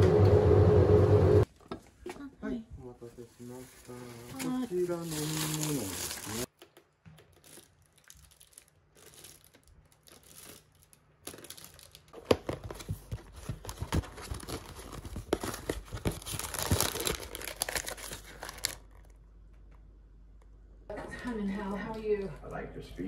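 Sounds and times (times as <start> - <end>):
packaging crinkling and tearing: 3.8 - 6.6, 7.2 - 19.3.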